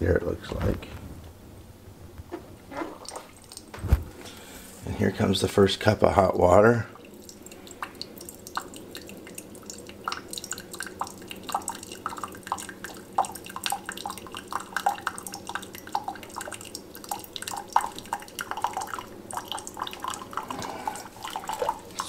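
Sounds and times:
water dripping into a mug: 3.0 - 3.7, 6.2 - 22.0
coffee maker humming: 6.9 - 22.0.

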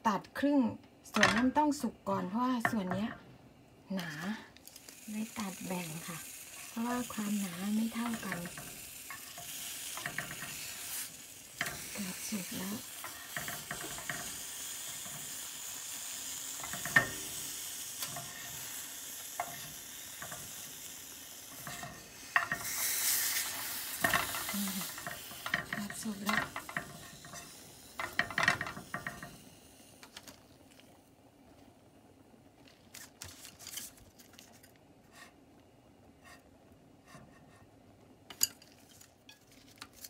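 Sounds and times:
cactus pads sizzling in a pan: 0.0 - 3.2, 3.8 - 40.0
utensil clicking on a pan: 4.8 - 29.4.

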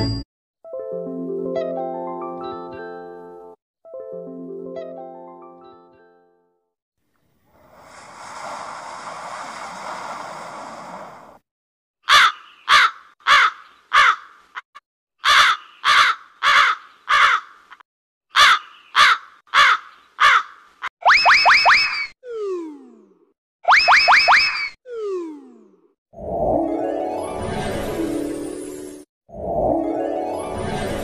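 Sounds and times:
crow cawing: 12.0 - 14.5, 15.2 - 20.7.

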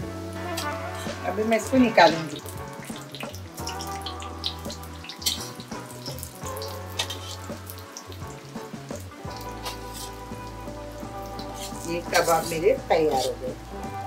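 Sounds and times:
oil sizzling and crackling: 0.0 - 14.0.

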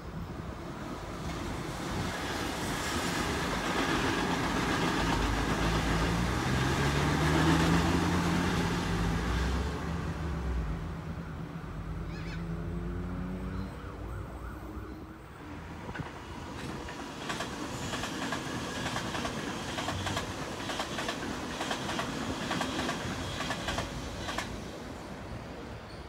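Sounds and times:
train wheels rushing: 1.0 - 10.0, 15.8 - 25.4
wheels clicking over rail joints: 15.9 - 24.6.

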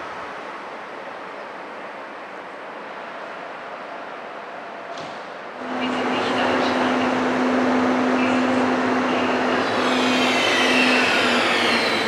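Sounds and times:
electric locomotive humming: 0.0 - 12.0
high whining tones falling: 9.4 - 12.0.

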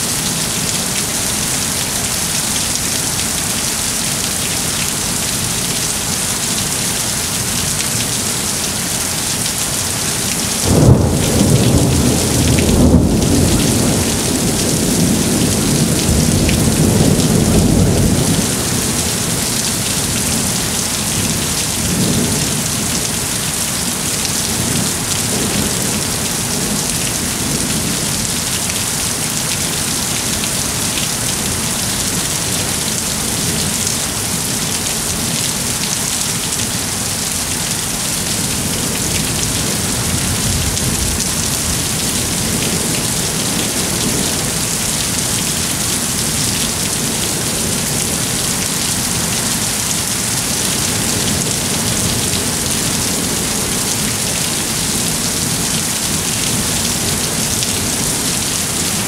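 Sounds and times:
rain hissing: 0.0 - 59.0
thunder cracking and rumbling: 10.6 - 19.4, 38.6 - 43.0.

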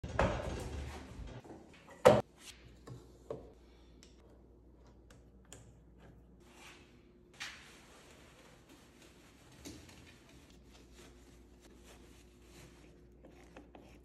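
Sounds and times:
cabinet rumbling on casters: 0.0 - 1.4.

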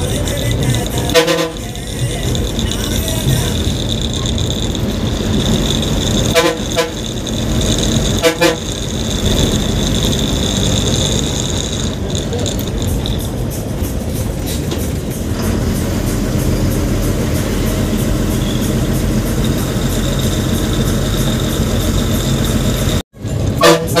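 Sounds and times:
diesel engine running: 0.0 - 24.0
road noise: 0.0 - 24.0
bus horn blasts: 0.9 - 2.0, 5.8 - 9.7, 15.5 - 24.0.

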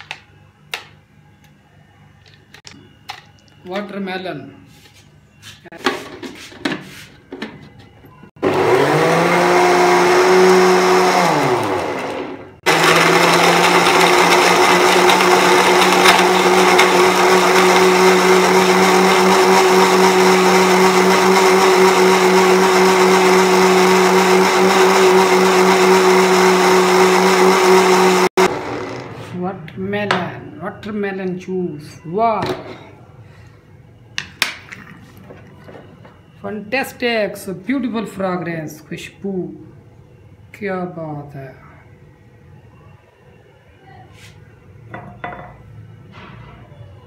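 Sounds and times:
blender motor running: 8.4 - 29.2.

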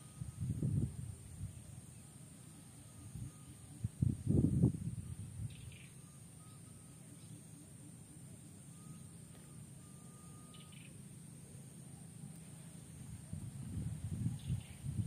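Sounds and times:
low steady hum: 0.0 - 15.0
distant bird chirps: 5.0 - 13.6, 14.2 - 15.0
thin whistled notes: 8.5 - 11.0.

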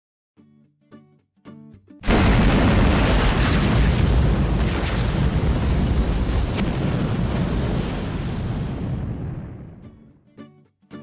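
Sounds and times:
fiery explosion with low rumble: 2.0 - 10.0.

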